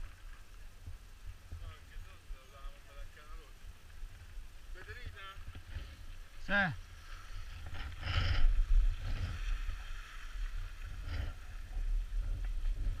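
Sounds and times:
wind buffeting microphone: 7.0 - 13.0.

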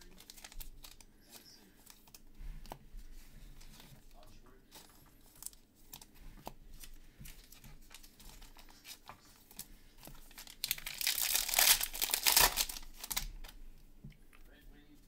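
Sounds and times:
wrapper tearing crinkle: 0.0 - 2.0, 7.5 - 13.6
wrapper clicks and rustles: 6.8 - 13.6.

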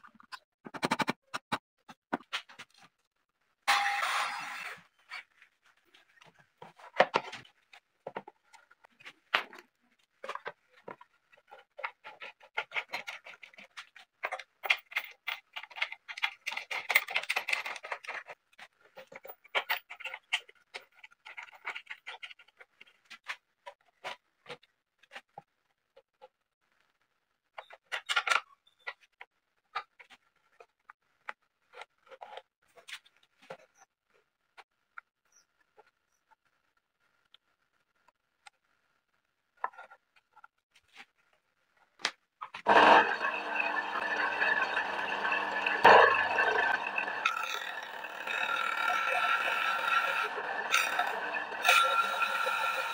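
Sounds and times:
wooden and metal parts clicking: 10.2 - 24.7.

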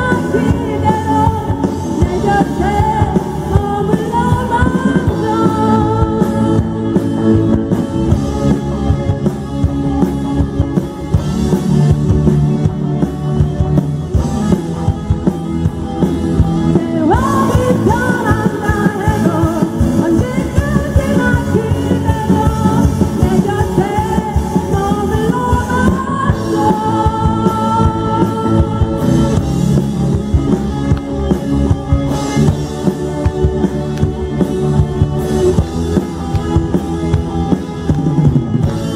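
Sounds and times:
woman singing lead: 0.0 - 7.8, 16.6 - 30.5
electric guitars: 0.0 - 38.9
keyboard: 0.0 - 38.9
steady drum beat: 0.0 - 38.9.

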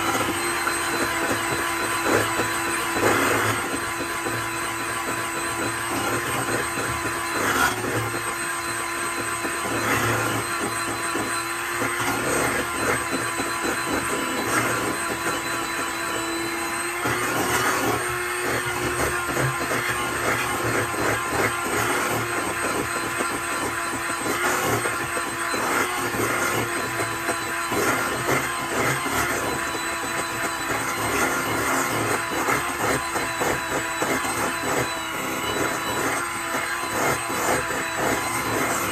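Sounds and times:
electric hand mixer whining: 0.0 - 38.9.

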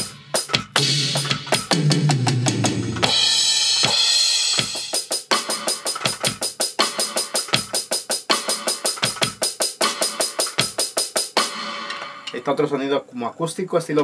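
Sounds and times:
quick drum beat: 0.0 - 12.4.

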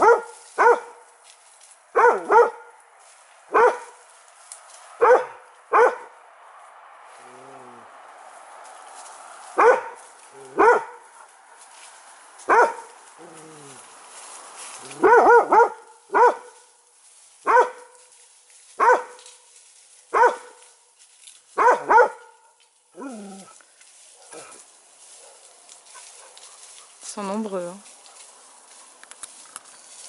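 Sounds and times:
animal barking: 0.0 - 1.0, 1.9 - 2.8, 3.5 - 4.0, 5.0 - 6.2, 9.6 - 11.3, 12.4 - 13.9, 14.8 - 16.6, 17.4 - 18.0, 18.8 - 19.2, 20.1 - 20.7, 21.6 - 23.6, 24.2 - 27.0.

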